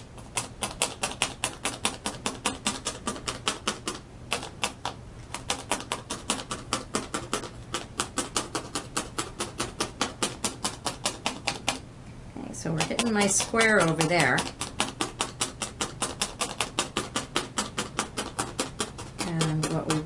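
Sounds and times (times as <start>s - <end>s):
felting needle clicking: 0.3s - 11.8s, 12.7s - 20.0s.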